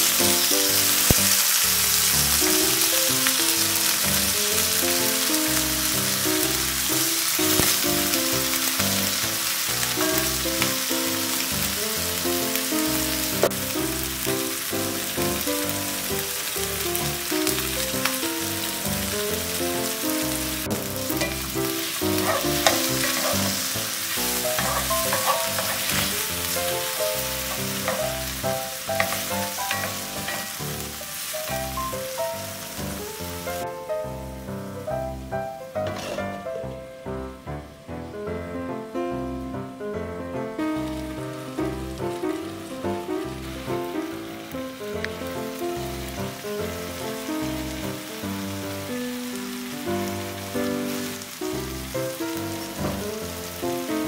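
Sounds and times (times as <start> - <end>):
vegetables sizzling in oil: 0.0 - 36.8, 40.6 - 54.0
light background music: 19.6 - 32.4.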